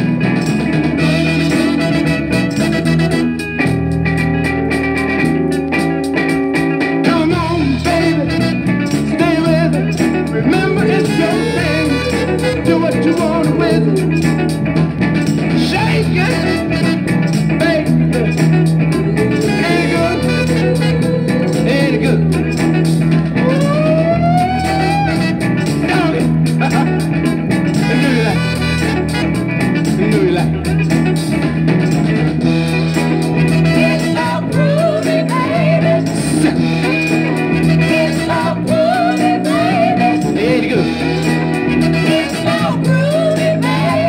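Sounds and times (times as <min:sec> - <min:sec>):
bass line: 0:00.0 - 0:44.0
guitar: 0:00.0 - 0:44.0
person singing: 0:07.0 - 0:14.6, 0:15.5 - 0:16.9, 0:17.5 - 0:27.1, 0:33.6 - 0:44.0.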